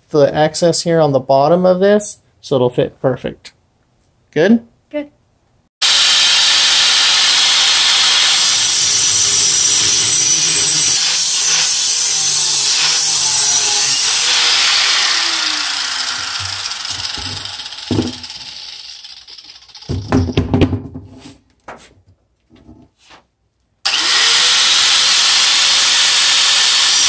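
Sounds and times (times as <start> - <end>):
angle grinder cutting steel: 5.8 - 20.0, 23.9 - 27.0.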